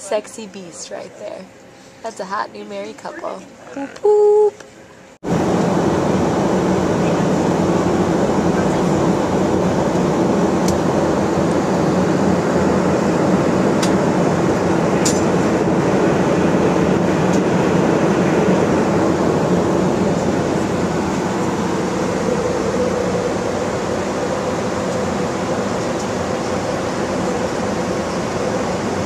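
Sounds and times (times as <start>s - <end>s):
jet engine drone: 5.1s - 29.0s
airflow past fuselage: 5.2s - 29.0s.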